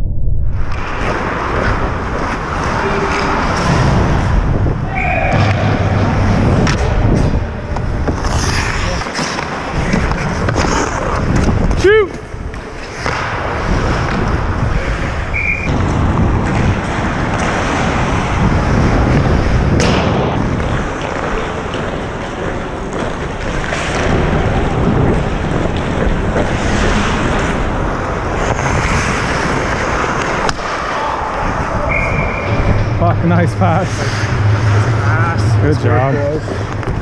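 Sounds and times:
wind on microphone: 0:00.0 - 0:09.0, 0:13.4 - 0:21.0
skate blades scraping ice: 0:06.1 - 0:32.9.

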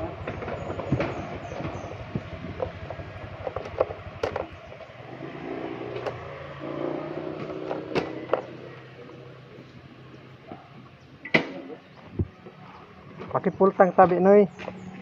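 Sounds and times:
knocks and rattles: 0:00.0 - 0:05.0, 0:07.2 - 0:08.6
motorcycle engine running: 0:00.0 - 0:15.0.

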